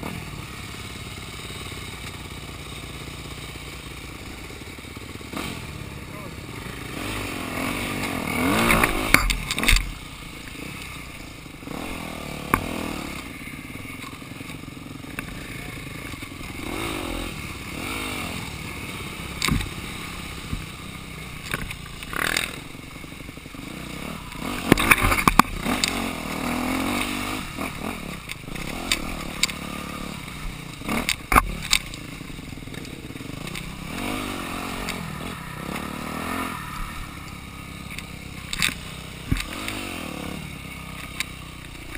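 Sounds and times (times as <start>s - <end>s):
dirt bike engine revving: 0.0s - 41.9s
bike knocking and rattling: 7.9s - 35.9s, 37.3s - 41.9s.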